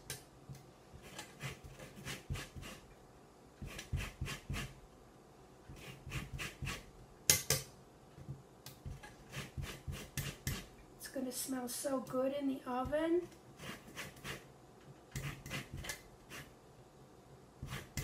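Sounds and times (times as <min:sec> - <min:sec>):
zester scraping orange peel: 0:01.0 - 0:02.8, 0:03.6 - 0:04.8, 0:05.7 - 0:06.9, 0:09.2 - 0:10.7, 0:13.6 - 0:14.5, 0:15.1 - 0:16.6, 0:17.6 - 0:18.0.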